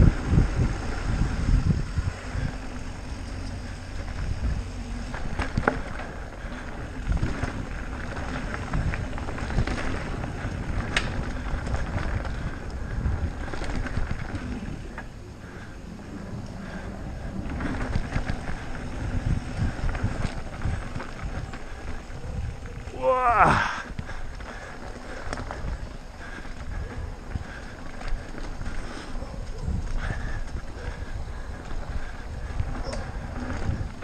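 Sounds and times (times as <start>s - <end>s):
bike clicks: 0.0s - 34.0s
tyres rumbling on dirt: 0.0s - 34.0s
wind buffeting microphone: 0.0s - 34.0s.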